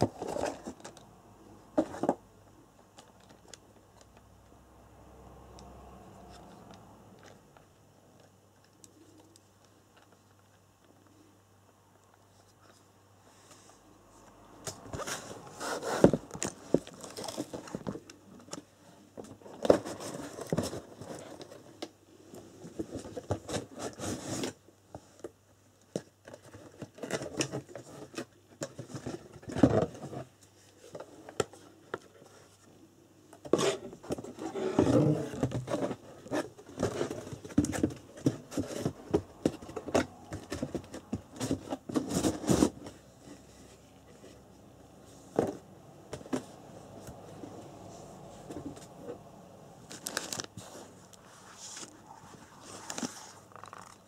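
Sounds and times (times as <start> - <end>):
cardboard box rustling and scraping: 0.0 - 1.0, 14.9 - 18.6, 19.2 - 21.8, 22.4 - 24.6, 33.4 - 44.4, 49.9 - 54.0.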